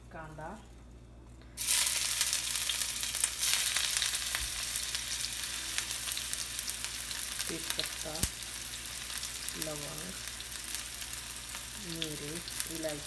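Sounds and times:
onion sizzling in hot oil: 0:01.6 - 0:13.0
crackling pops: 0:07.7 - 0:08.4.

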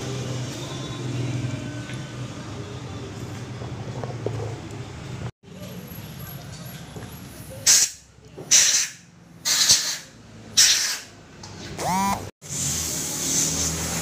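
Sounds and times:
hissing spray bursts: 0:07.6 - 0:11.1, 0:12.4 - 0:14.0.

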